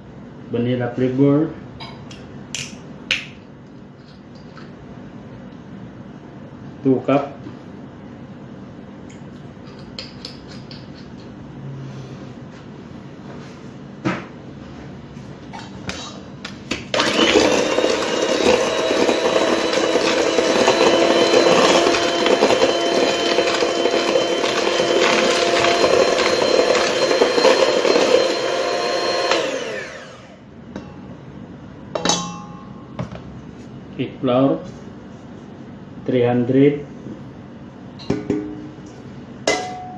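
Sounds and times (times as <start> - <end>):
electric hand mixer whining: 16.9 - 30.5.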